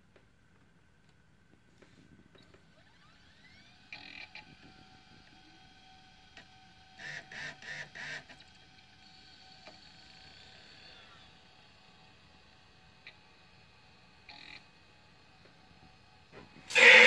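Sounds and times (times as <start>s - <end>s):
faint steady whine: 0.0s - 17.0s
drive spinning up whine: 2.1s - 14.9s
disk drive seeking pulses: 2.1s - 15.9s.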